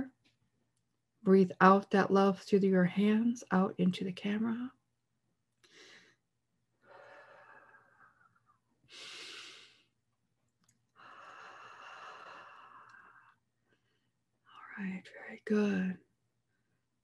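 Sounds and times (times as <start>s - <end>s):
woman breathing slowly: 5.6s - 10.0s, 10.9s - 14.2s.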